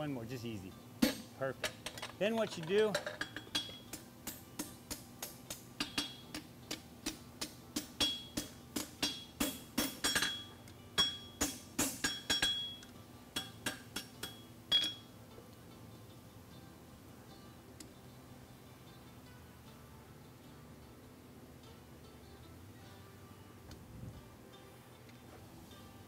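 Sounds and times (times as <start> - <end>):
hammer striking metal on anvil: 3.2 - 15.1.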